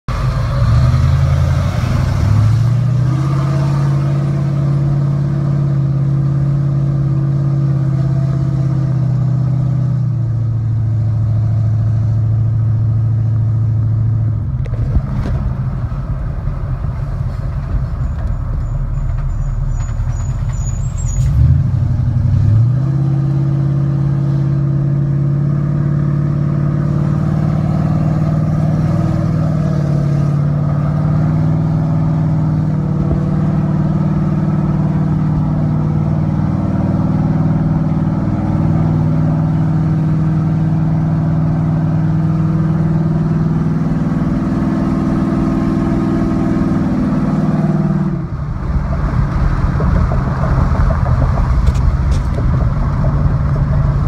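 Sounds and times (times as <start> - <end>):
engine drone inside car: 0.1 - 54.0.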